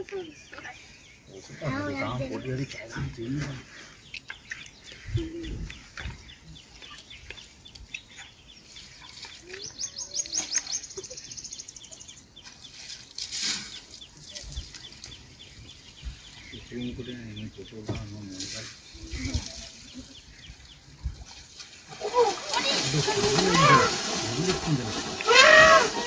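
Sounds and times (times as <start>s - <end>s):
wild birds calling: 0.0s - 26.0s.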